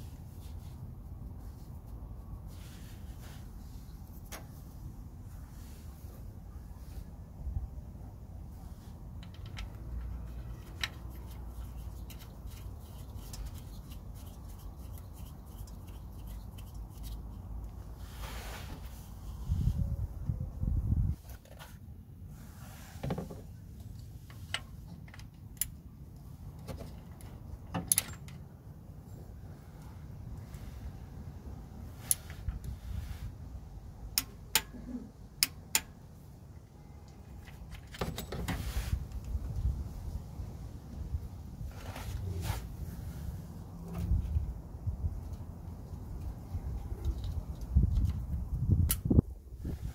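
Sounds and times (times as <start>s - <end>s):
switch screwing clicks and scrapes: 9.2s - 17.4s.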